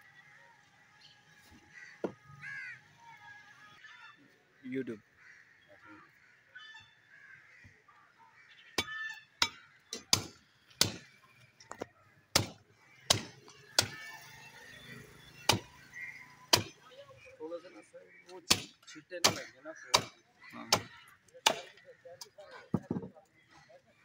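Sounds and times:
cleaver chopping on wooden block: 0:08.8 - 0:11.1, 0:12.3 - 0:14.0, 0:16.5 - 0:16.8, 0:18.5 - 0:21.7.

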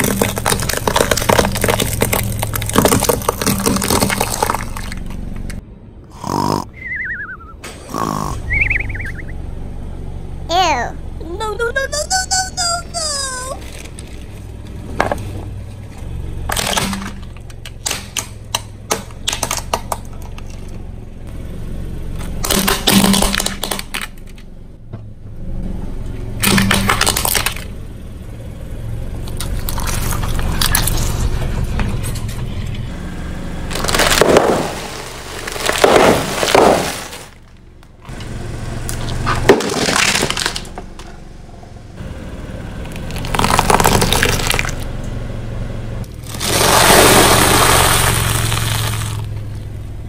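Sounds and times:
tyre crushing plastic and snacks: 0:00.0 - 0:05.2, 0:33.7 - 0:37.6, 0:39.4 - 0:41.1, 0:42.9 - 0:44.8, 0:46.1 - 0:49.3
car running hum: 0:00.0 - 0:50.0.

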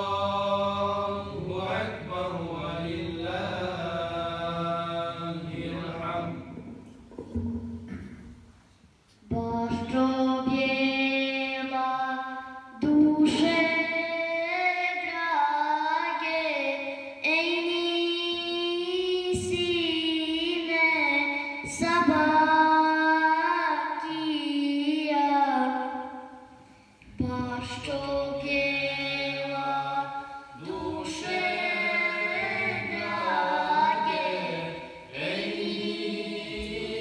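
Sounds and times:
person chanting: 0:00.0 - 0:06.6, 0:27.2 - 0:37.0.

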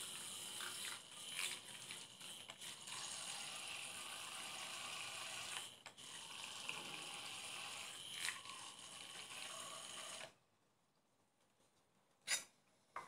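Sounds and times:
immersion blender running: 0:00.0 - 0:10.4.

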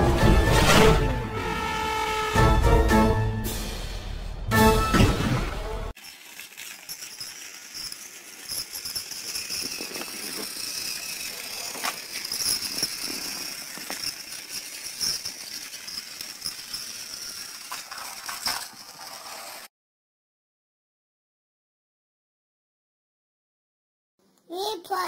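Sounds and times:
toy train motor whine: 0:01.3 - 0:02.6, 0:05.9 - 0:19.7
wheels clicking and rattling: 0:05.9 - 0:19.7.

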